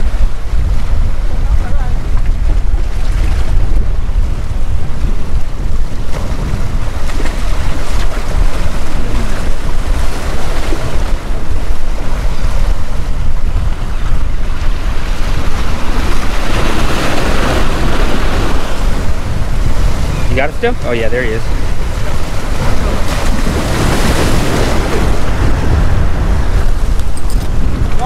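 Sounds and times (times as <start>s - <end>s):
wind buffeting microphone: 0.0s - 28.0s
surf breaking against rocks: 5.8s - 28.0s.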